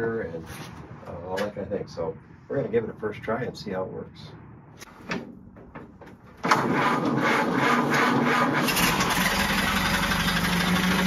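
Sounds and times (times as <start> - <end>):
engine starter cranking: 6.4 - 11.0
car engine running: 6.6 - 11.0.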